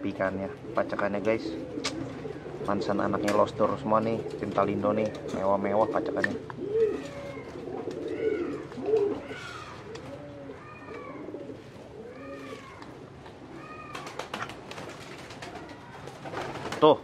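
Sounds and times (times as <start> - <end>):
pigeons cooing: 0.0 - 17.0.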